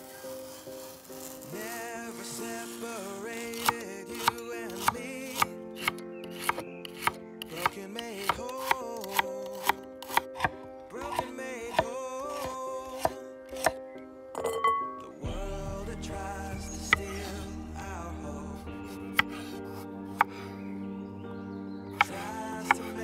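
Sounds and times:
background music: 0:00.0 - 0:23.0.

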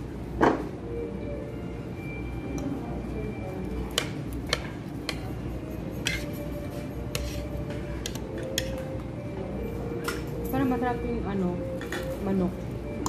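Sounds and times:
low background hum: 0:00.0 - 0:13.0
utensils clinking on dishes: 0:03.8 - 0:09.1, 0:09.9 - 0:10.8, 0:11.7 - 0:12.4.

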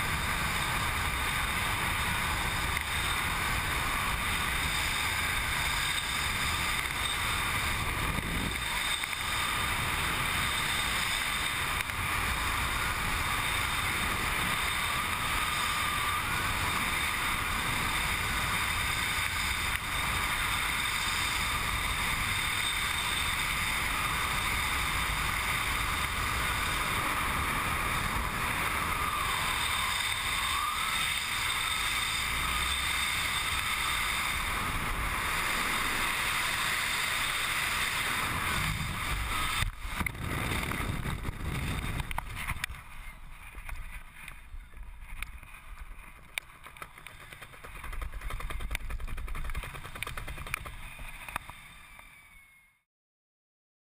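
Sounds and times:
freefall wind rushing: 0:23.2 - 0:42.8.

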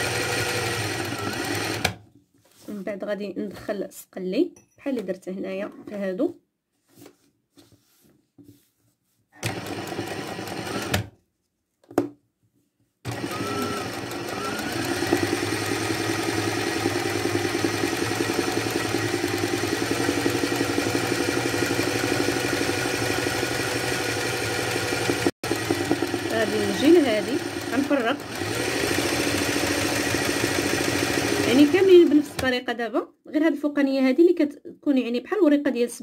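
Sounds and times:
sewing machine stitching: 0:00.0 - 0:02.0, 0:09.4 - 0:11.1, 0:13.1 - 0:32.5.

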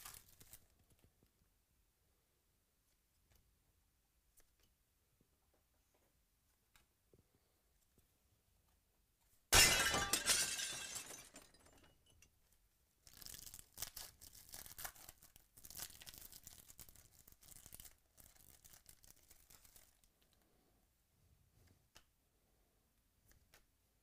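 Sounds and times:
wrapper crinkling and tearing: 0:00.0 - 0:00.8, 0:13.0 - 0:20.2.

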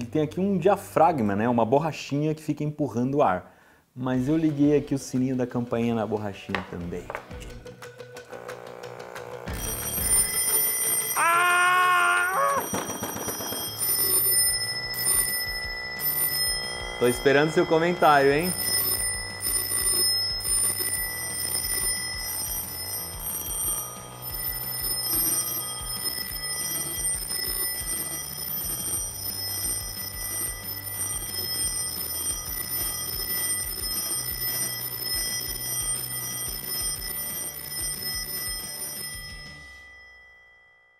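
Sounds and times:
telephone bell ringing rapidly: 0:09.5 - 0:40.9.

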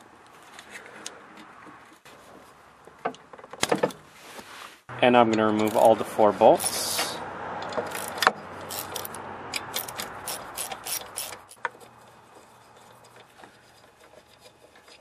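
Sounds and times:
socket ratchet clicking: 0:07.7 - 0:11.8.

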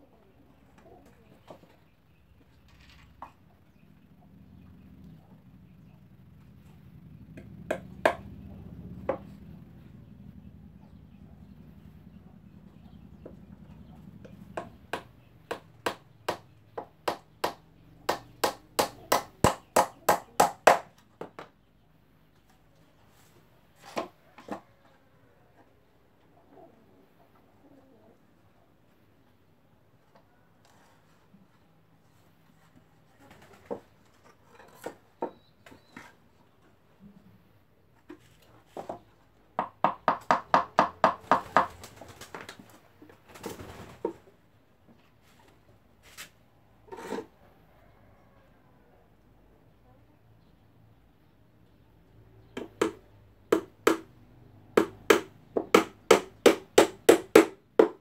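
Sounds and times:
hammer striking wooden box: 0:52.6 - 0:54.1, 0:54.8 - 0:58.0.

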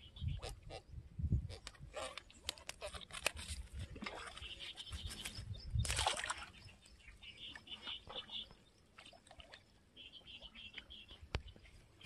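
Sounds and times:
splash into pond water: 0:05.8 - 0:06.6.

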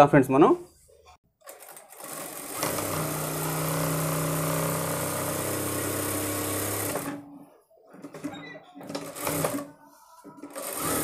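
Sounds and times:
sewing machine running: 0:01.4 - 0:07.2, 0:08.1 - 0:09.7, 0:10.4 - 0:11.0.

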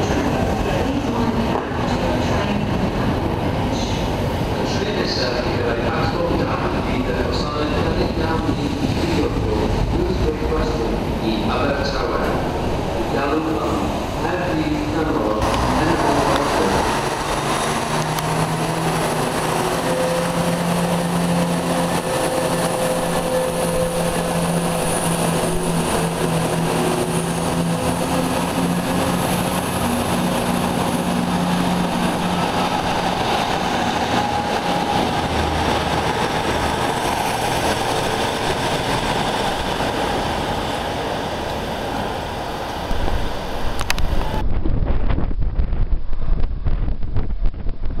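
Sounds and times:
train moving: 0:00.0 - 0:48.0
diesel engines droning: 0:08.6 - 0:44.4.

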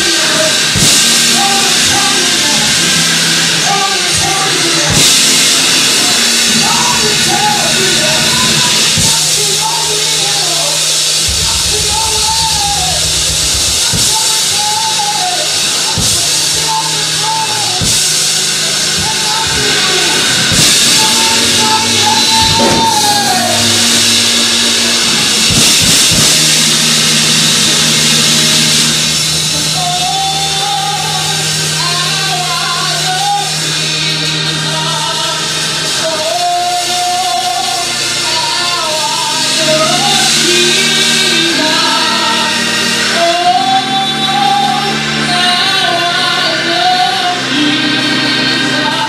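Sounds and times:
drum kit: 0:00.0 - 0:47.8
keyboard: 0:00.0 - 0:49.0
singer through microphone: 0:00.0 - 0:49.0
held low note: 0:11.0 - 0:31.3.

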